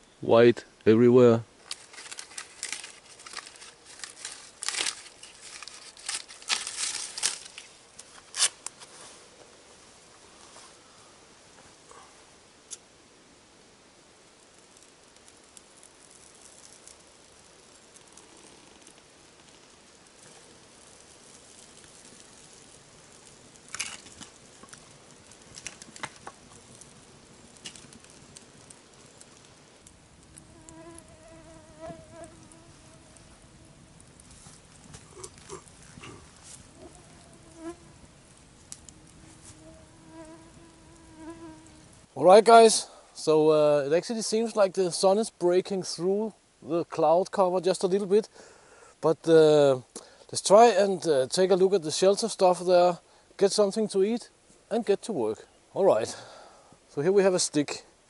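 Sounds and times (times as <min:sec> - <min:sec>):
campfire crackling: 0:00.0 - 0:58.0
fly buzzing: 0:30.3 - 0:33.9, 0:34.9 - 0:38.1, 0:38.8 - 0:42.0.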